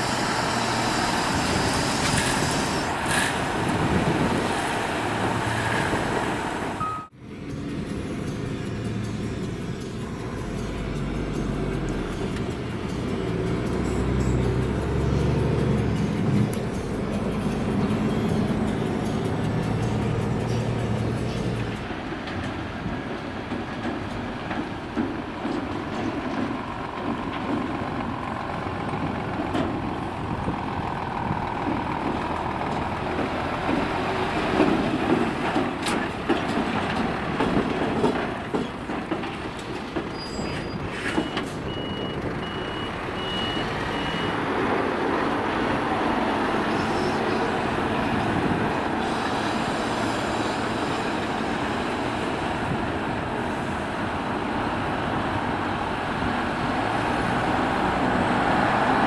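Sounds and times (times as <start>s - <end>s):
heavy diesel truck engine: 0.0s - 59.0s
reversing alarm beeping: 6.8s - 7.2s, 41.1s - 44.4s.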